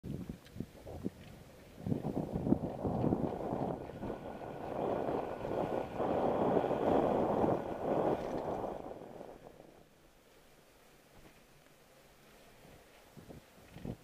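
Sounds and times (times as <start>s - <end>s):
bicycle rattling over rough ground: 0.1s - 10.0s.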